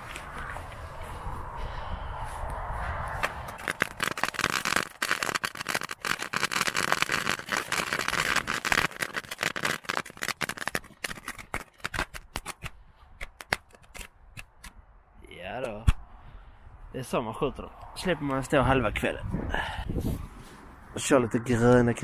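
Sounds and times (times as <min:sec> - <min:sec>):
firecracker fuse fizz: 0:03.6 - 0:11.6
firecrackers crackling: 0:03.6 - 0:12.7.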